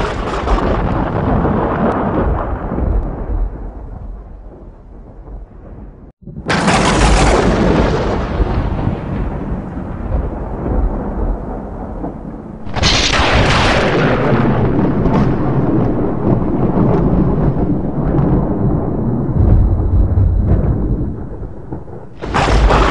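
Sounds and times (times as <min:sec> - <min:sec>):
thunder crack and rumble: 0:00.0 - 0:22.9.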